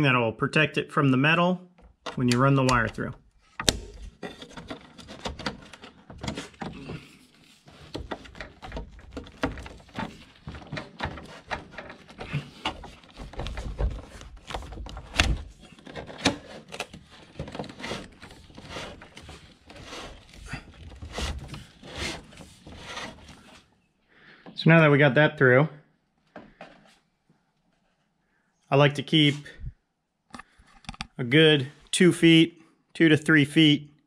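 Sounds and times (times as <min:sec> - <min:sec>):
plastic clicks and knocks: 0:01.8 - 0:23.4, 0:30.3 - 0:31.2
plastic and wire rubbing metal: 0:01.8 - 0:23.8.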